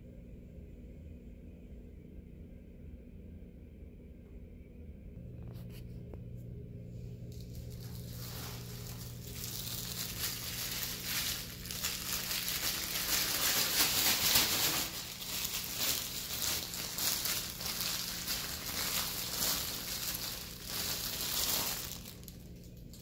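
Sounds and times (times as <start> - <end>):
plastic bag crinkling: 7.2 - 23.0.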